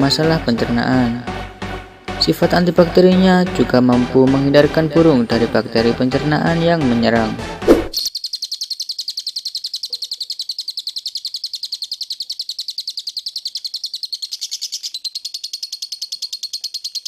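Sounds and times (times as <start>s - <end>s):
lovebird rapid chirping: 7.7s - 17.0s.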